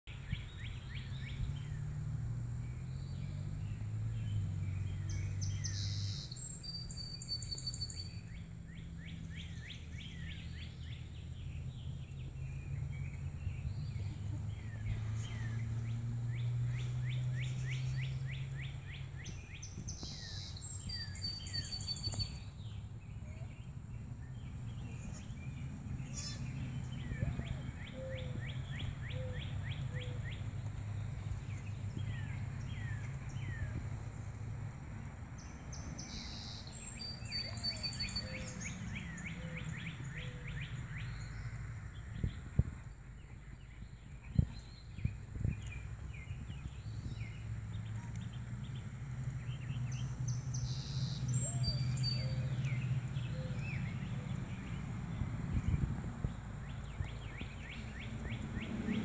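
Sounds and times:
birds chirping: 0:00.1 - 0:59.0.

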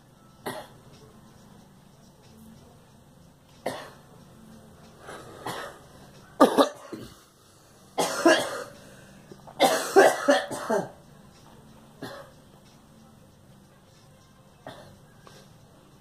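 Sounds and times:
woman coughing: 0:00.4 - 0:00.8, 0:03.6 - 0:04.0, 0:05.4 - 0:05.8, 0:06.4 - 0:07.2, 0:08.0 - 0:08.7, 0:09.6 - 0:11.0, 0:12.0 - 0:12.3, 0:14.6 - 0:15.0.

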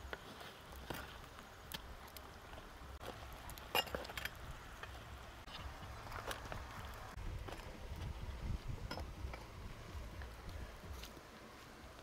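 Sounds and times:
utensils clinking on metal pot: 0:03.7 - 0:04.4.

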